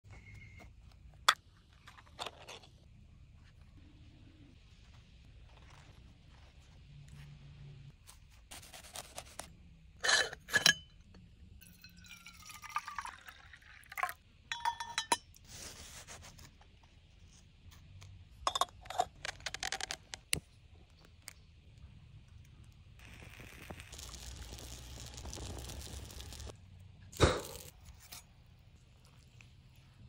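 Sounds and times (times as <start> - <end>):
metal items clinking and scraping: 1.7 - 2.9.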